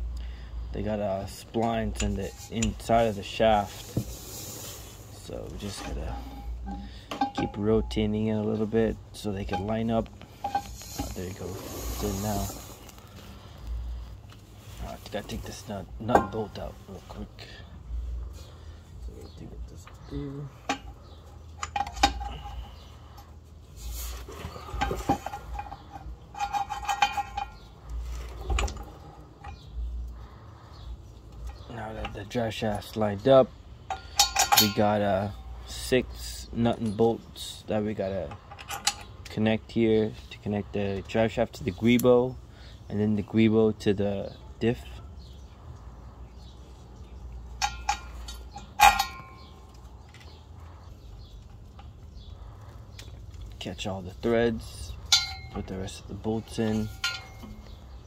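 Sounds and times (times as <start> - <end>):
metal bolts clinking and knocking: 1.3 - 4.2, 5.2 - 12.6, 15.3 - 16.7, 20.6 - 23.3, 24.4 - 29.9, 31.3 - 37.2, 37.9 - 39.5, 47.4 - 50.4, 53.5 - 58.0.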